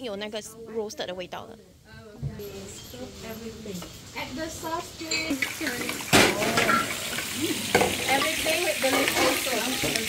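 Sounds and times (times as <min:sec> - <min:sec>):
paste sizzling in hot oil: 0:05.3 - 0:10.0.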